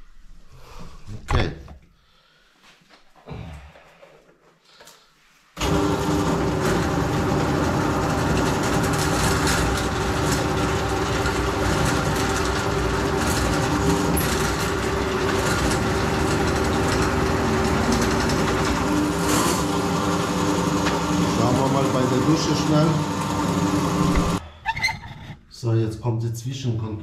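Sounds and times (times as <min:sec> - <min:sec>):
motor-driven machine humming: 0:05.6 - 0:24.4.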